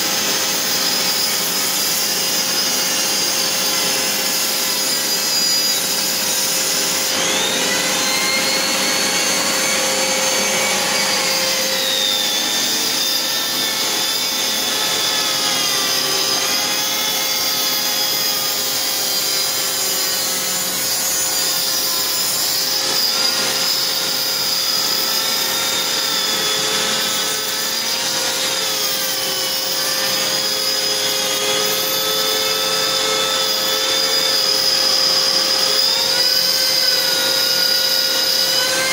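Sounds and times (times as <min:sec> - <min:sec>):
rotary tool grinding grout: 0:00.0 - 0:38.9
vacuum cleaner running: 0:05.8 - 0:18.8.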